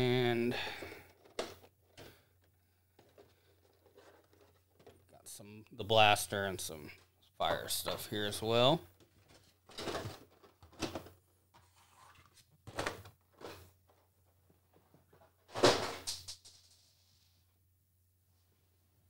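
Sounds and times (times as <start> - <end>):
plastic packaging rustling: 2.9 - 5.2.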